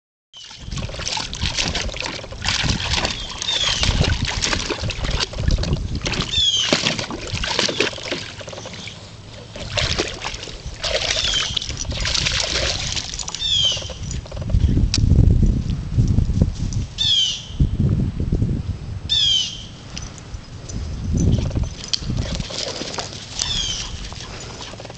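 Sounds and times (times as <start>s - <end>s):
water splashing in a pool: 0.4s - 14.4s, 21.4s - 24.9s
bird chirping: 13.4s - 14.5s.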